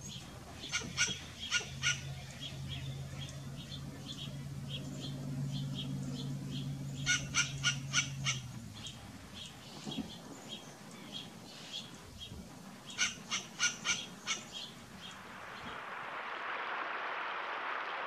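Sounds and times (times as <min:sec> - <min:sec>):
squirrel barking: 0:00.6 - 0:09.6, 0:12.9 - 0:15.2.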